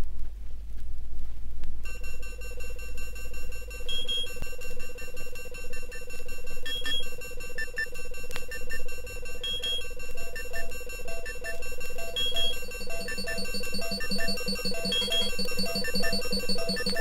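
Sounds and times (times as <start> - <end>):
low hum with noise: 0.0 - 17.0
held electronic tones: 1.9 - 17.0
short high beeps: 9.4 - 17.0.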